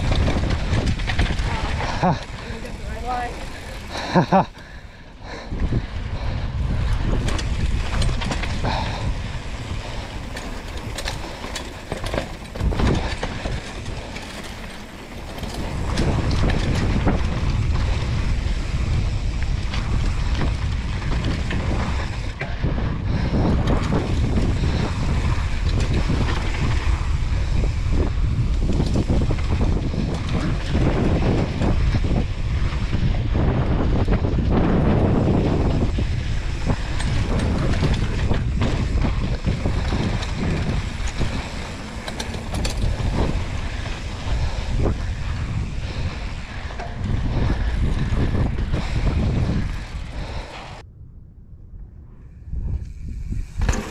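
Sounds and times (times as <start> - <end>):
bike tyres clattering on trail: 0.0 - 50.8, 52.7 - 53.9
wind buffeting microphone: 0.0 - 53.9.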